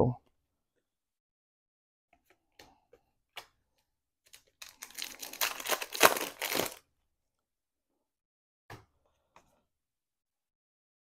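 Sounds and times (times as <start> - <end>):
foil wrapper ripped open: 4.3 - 6.8.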